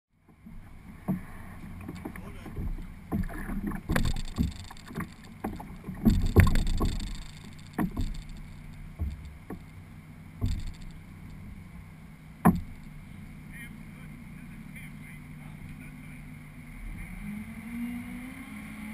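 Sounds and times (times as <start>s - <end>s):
steady low hum: 0.1s - 18.2s
hollow knocks on boat hull: 0.2s - 11.5s, 12.4s - 13.0s.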